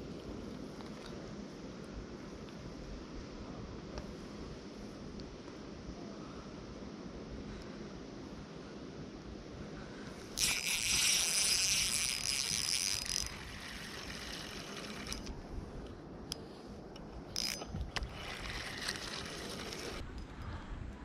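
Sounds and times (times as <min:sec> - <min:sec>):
fishing reel whirring: 0:10.3 - 0:15.4, 0:17.3 - 0:20.0
fishing reel clicks: 0:10.4 - 0:15.3, 0:17.3 - 0:20.0.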